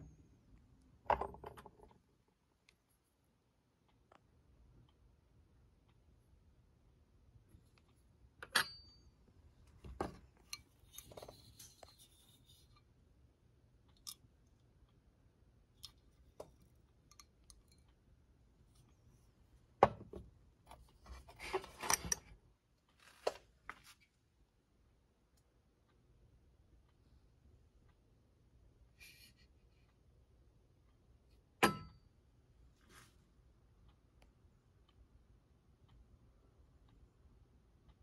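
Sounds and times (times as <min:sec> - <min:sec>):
metallic ring: 0:08.4 - 0:09.2, 0:31.6 - 0:32.0.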